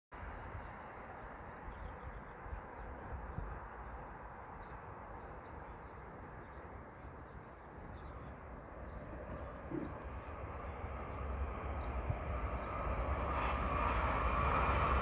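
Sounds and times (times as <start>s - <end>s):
small birds chirping: 0.2s - 14.0s
low outdoor rumble: 4.8s - 15.0s
high-speed train rushing: 8.3s - 15.0s.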